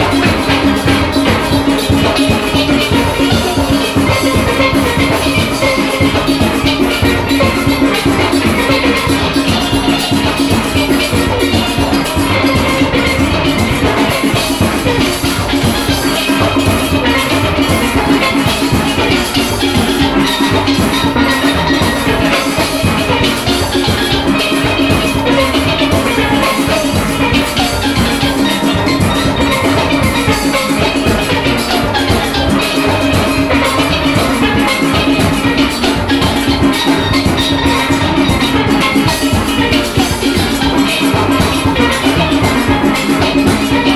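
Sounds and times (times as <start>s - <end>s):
drum kit: 0.0s - 43.9s
steelpans playing: 0.0s - 43.9s.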